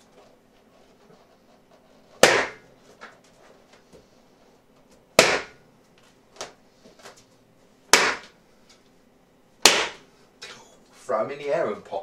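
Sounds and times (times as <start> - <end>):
balloons popping: 2.2 - 2.7, 7.9 - 8.4, 9.6 - 10.0.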